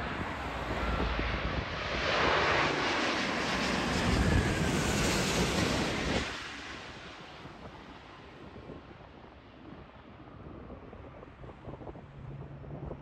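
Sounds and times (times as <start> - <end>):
jet airliner passing close: 0.0 - 13.0.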